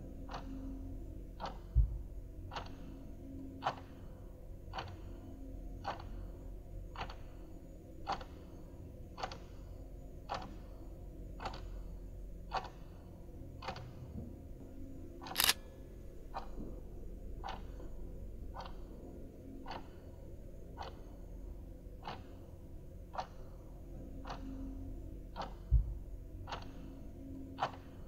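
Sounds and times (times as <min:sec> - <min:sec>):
faint low hum: 0:00.0 - 0:28.0
sharp click: 0:15.2 - 0:15.7.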